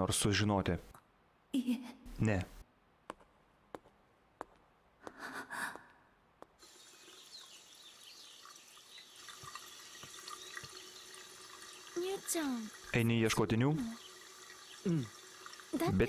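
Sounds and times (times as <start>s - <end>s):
tap running water into sink: 6.6s - 16.0s.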